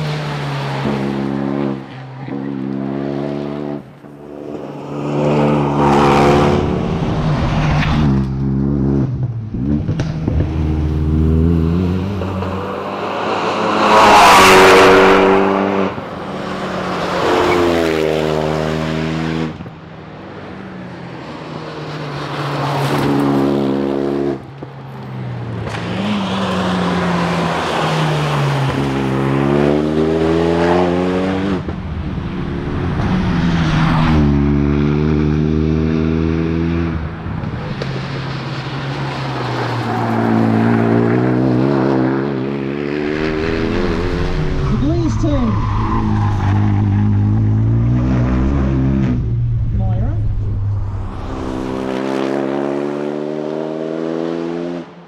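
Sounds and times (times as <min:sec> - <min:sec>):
rally car engine revving past: 0:04.9 - 0:16.0, 0:39.0 - 0:55.0.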